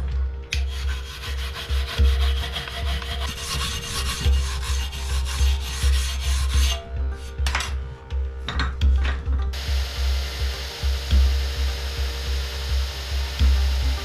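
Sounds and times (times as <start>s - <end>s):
metal grinding scrape: 0.7s - 7.7s
low pulsing: 8.1s - 14.0s.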